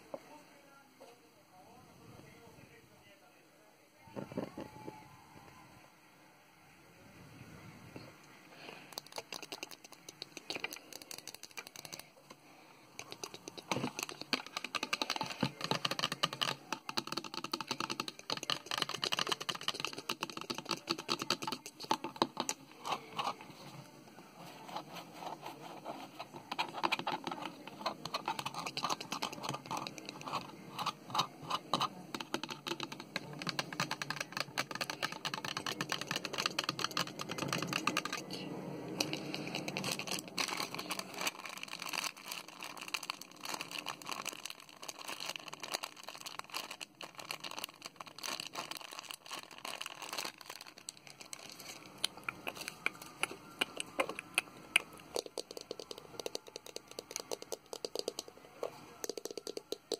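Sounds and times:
fingernails tapping on hard plastic: 13.0 - 22.5, 26.5 - 38.2.

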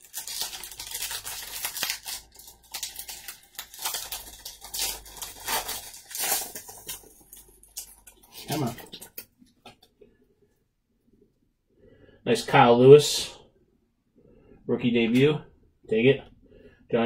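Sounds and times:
wrapper tearing and crinkling: 0.0 - 9.3.

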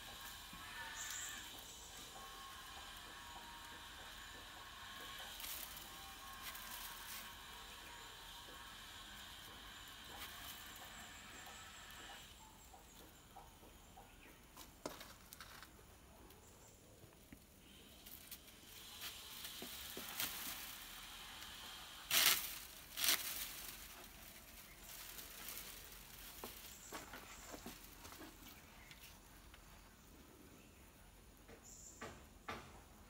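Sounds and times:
sticks rustling and clicking: 21.6 - 29.6.

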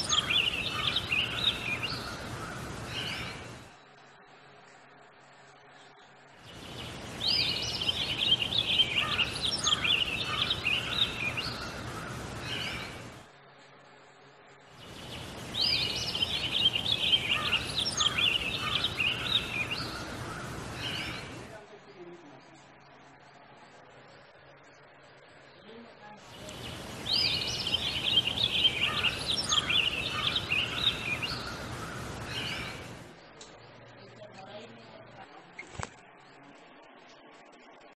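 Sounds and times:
bird chirping: 0.0 - 4.8, 5.6 - 13.3, 14.7 - 21.6, 25.4 - 36.4
background hiss: 0.0 - 38.0.

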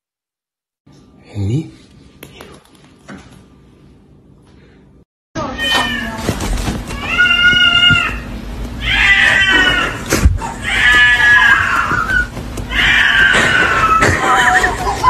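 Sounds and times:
cat meowing loudly: 5.4 - 6.2, 6.9 - 14.8.

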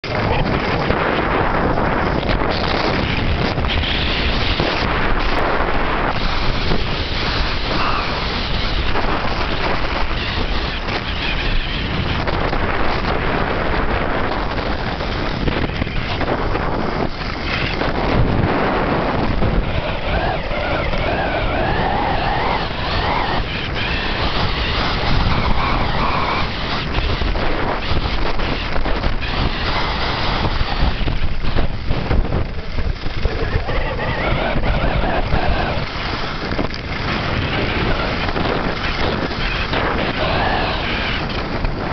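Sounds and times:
wind rushing over microphone: 0.0 - 41.9
skis scraping on snow: 14.3 - 34.6.

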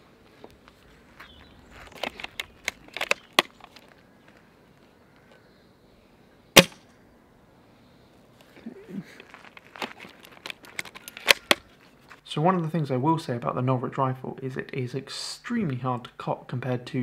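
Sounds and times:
rifle shot crack: 6.6 - 6.9
rifle bolt clicks: 10.4 - 11.6.

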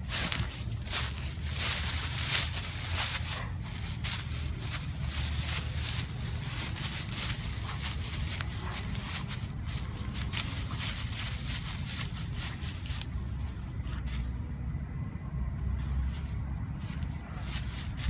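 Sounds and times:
dry leaves rustling: 0.0 - 14.8, 15.5 - 18.0
steady low rumble: 0.0 - 18.0.

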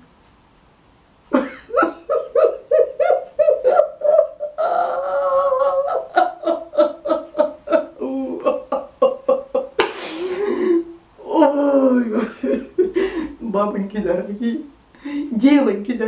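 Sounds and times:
woman laughing: 1.3 - 13.5.

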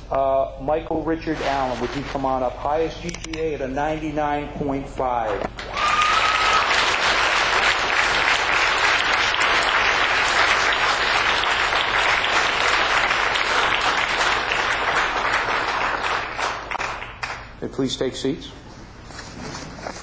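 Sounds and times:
audience applauding: 5.6 - 17.5.

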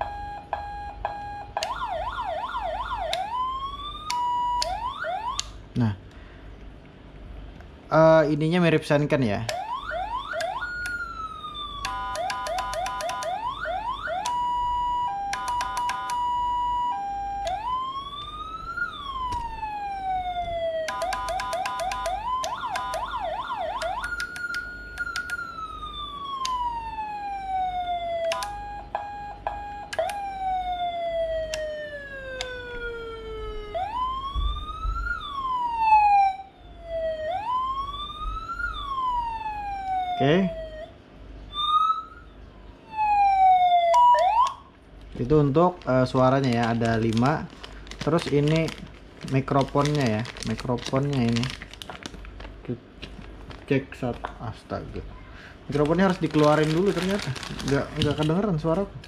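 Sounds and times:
electronic siren: 0.0 - 5.6, 9.5 - 44.7.

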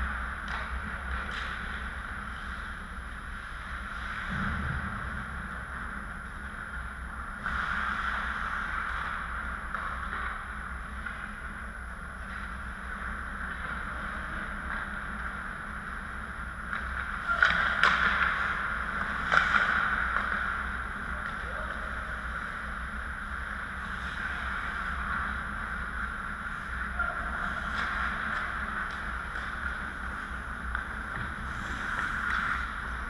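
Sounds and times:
arena hum: 0.0 - 33.0
distant skating: 0.0 - 33.0
skates scraping on ice: 7.4 - 11.5, 16.7 - 33.0.

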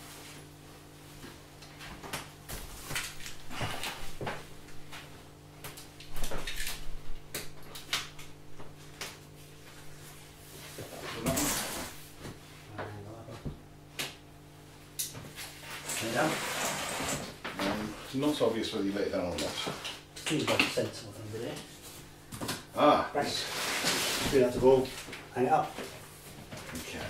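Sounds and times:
scraping rustle: 15.4 - 18.3, 23.2 - 25.1
cardboard and polystyrene handled: 23.2 - 27.0.

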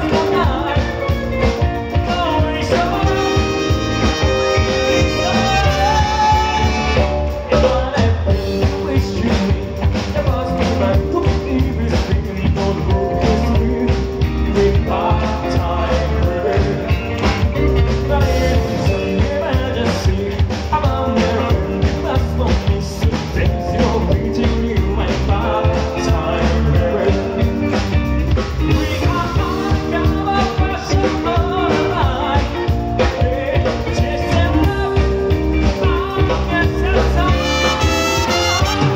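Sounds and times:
live pop-rock band: 0.0 - 38.9
man singing: 0.0 - 38.9
tenor saxophone: 3.0 - 7.3, 37.3 - 38.9.

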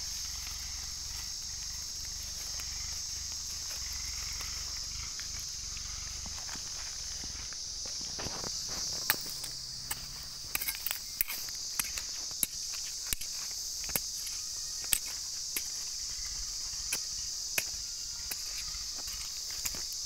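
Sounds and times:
insects droning: 0.0 - 20.0
hand tool tapping dry soil: 6.2 - 16.0, 16.8 - 20.0.

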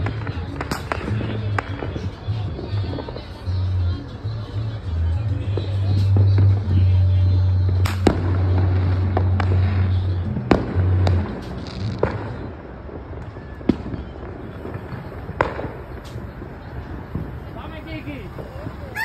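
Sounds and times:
distant fireworks bangs and pops: 0.0 - 3.2, 7.6 - 18.9.

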